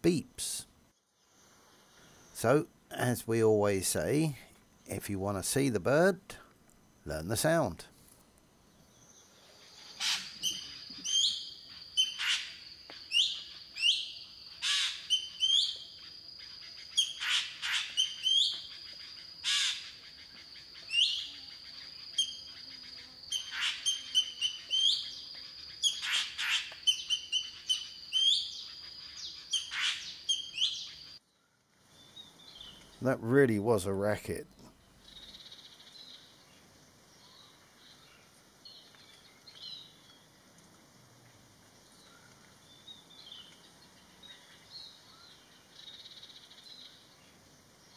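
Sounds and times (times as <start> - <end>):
bird harsh metallic calls: 9.6 - 31.2.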